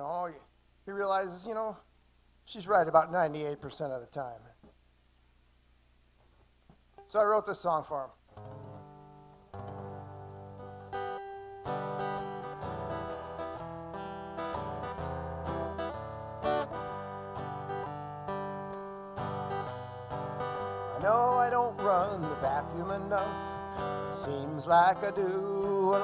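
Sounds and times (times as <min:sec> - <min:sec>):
acoustic guitar strumming chords: 0:08.3 - 0:26.0
man singing: 0:20.9 - 0:26.0.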